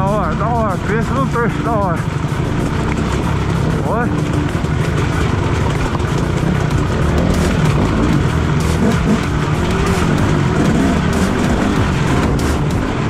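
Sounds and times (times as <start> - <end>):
motorcycle engine revving: 0.0 - 13.0.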